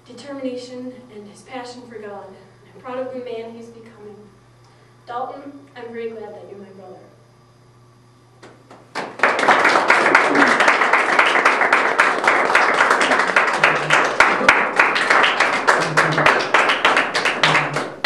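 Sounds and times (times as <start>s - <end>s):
small audience applauding: 8.4s - 18.0s.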